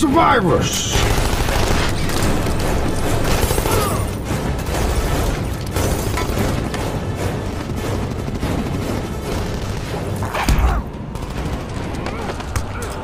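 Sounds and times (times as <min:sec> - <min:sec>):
dramatic orchestral score: 0:00.0 - 0:13.0.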